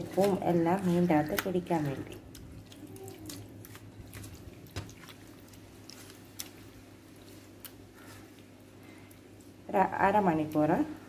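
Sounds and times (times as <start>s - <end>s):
wet squelching of hand in marinade: 0.0s - 8.4s.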